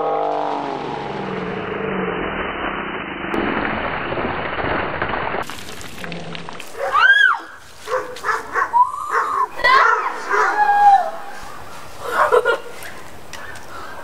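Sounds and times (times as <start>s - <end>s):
water pouring and splashing: 3.4s - 8.6s
person yelling: 8.6s - 11.7s.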